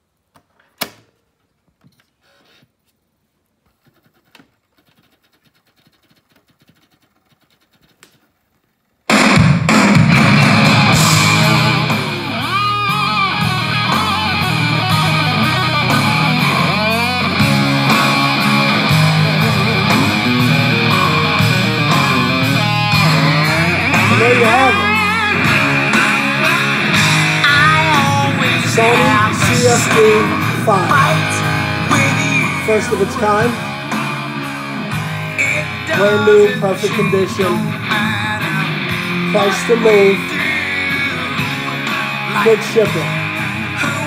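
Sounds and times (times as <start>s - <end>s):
heavy rock music from speakers: 9.1s - 44.0s.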